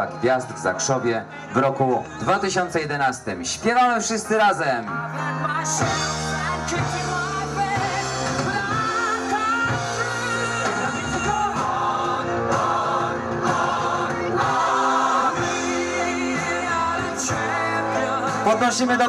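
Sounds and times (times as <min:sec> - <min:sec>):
group singing anthem: 0:05.1 - 0:19.0.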